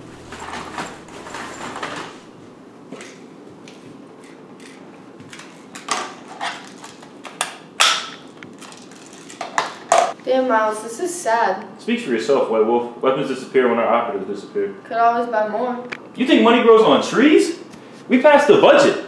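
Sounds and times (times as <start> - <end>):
plastic toy guns clacking: 5.4 - 10.2.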